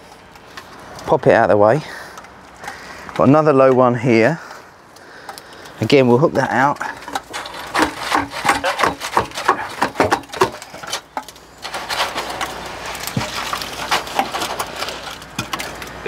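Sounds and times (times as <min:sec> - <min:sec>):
wood scraping on wood and gravel: 0:00.0 - 0:16.0
wooden knocks and clunks: 0:06.8 - 0:11.3.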